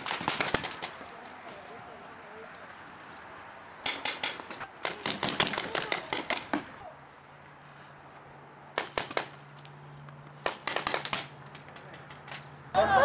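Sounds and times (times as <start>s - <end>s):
paintball markers firing: 0.0s - 1.3s, 3.9s - 6.8s, 8.8s - 9.7s, 10.3s - 12.2s.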